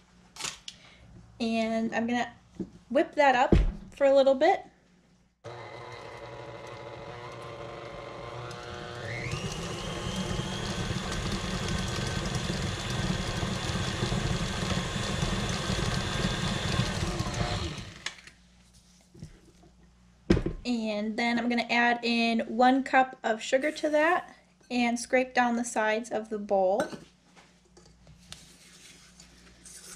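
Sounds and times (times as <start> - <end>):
stand mixer running: 5.5 - 18.1.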